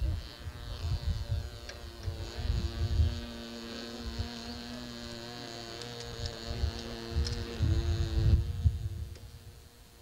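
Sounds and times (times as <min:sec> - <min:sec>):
low rumbling buffets: 0:00.0 - 0:10.0
steady hum of held tones: 0:00.0 - 0:10.0.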